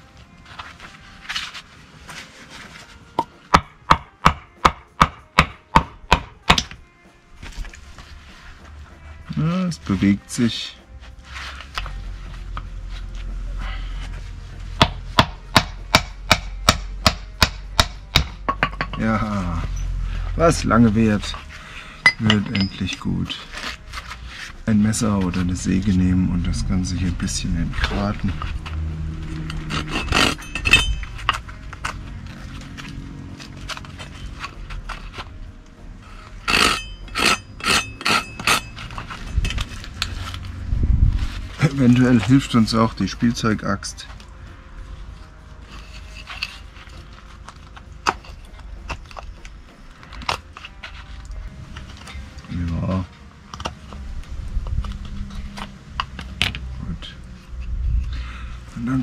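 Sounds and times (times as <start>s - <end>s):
wood and metal scraping: 0.4s - 4.5s, 5.8s - 44.2s, 44.8s - 56.7s
wooden mallet knocking: 3.2s - 6.8s, 14.8s - 19.1s
hand saw rasping wood: 29.3s - 30.6s, 36.1s - 39.2s.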